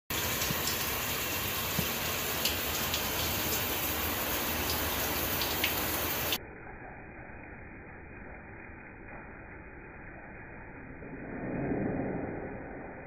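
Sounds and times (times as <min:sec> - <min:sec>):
water drips and splashes: 0:00.1 - 0:07.3.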